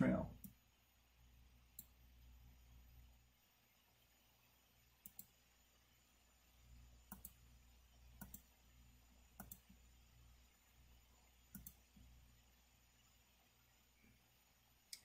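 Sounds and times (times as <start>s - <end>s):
faint low hum: 0.0s - 15.0s
computer mouse clicks: 5.0s - 5.3s, 7.1s - 7.4s, 8.2s - 8.5s, 9.4s - 9.8s, 11.5s - 11.8s.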